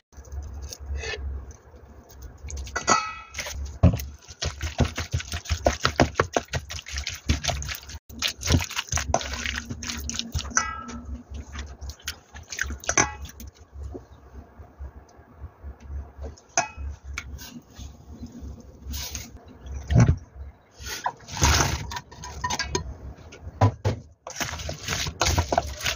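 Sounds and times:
wet squelching and scraping in a bowl: 0.2s - 14.4s, 16.3s - 19.9s, 24.3s - 25.9s.

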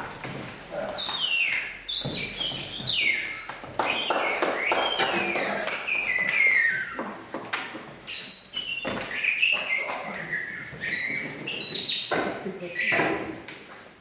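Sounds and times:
descending high whistles: 1.0s - 7.1s, 8.1s - 12.1s.

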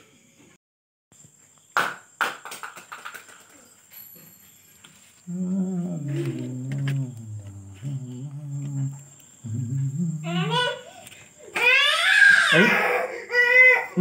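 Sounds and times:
man humming: 5.3s - 10.8s.

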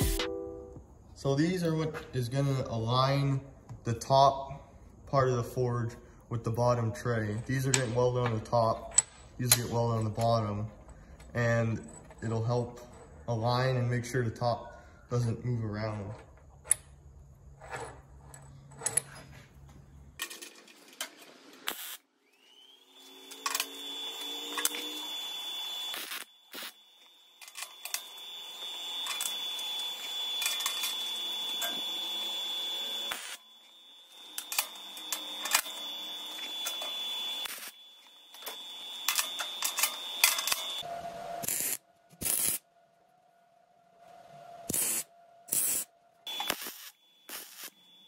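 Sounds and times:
faint high whine: 21.8s - 48.0s
metal clamps clinking: 39.1s - 40.8s.

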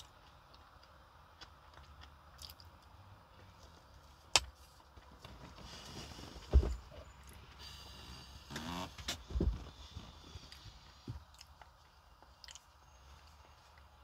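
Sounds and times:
person chewing soft food: 0.0s - 3.0s, 9.8s - 14.0s
dull thump: 6.5s - 6.8s.

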